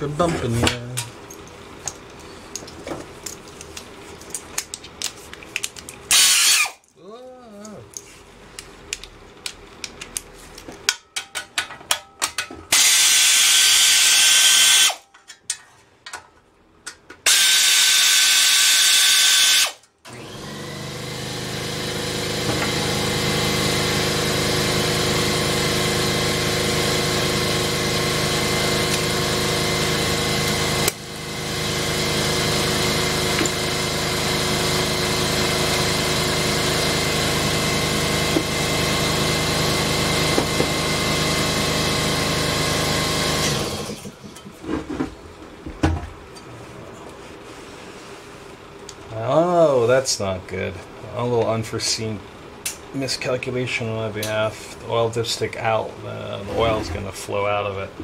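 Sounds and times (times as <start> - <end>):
power tool running: 6.1 - 6.8, 12.7 - 15.0, 17.2 - 44.2
steady machine hum: 20.1 - 45.6.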